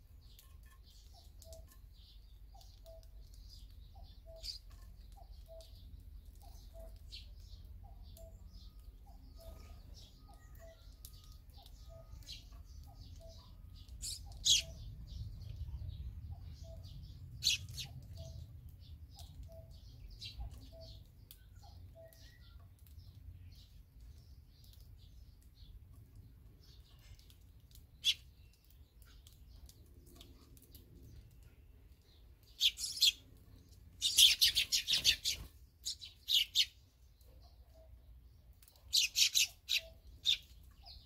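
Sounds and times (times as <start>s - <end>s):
swallows chirping: 0.2s - 41.0s.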